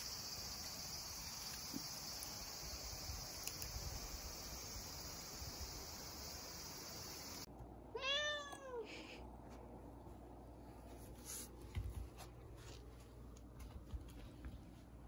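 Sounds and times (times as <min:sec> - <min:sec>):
cat meowing: 0:07.9 - 0:08.8.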